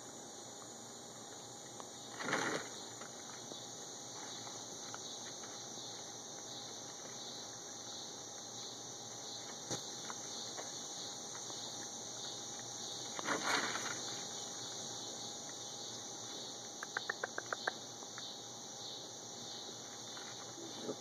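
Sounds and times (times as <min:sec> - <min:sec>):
steady high hiss: 0:00.0 - 0:21.0
rustling scuffle: 0:13.0 - 0:14.4.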